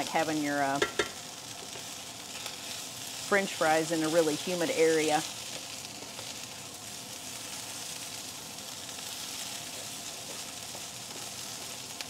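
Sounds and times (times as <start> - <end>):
potatoes sizzling in skillet: 0.0 - 12.0.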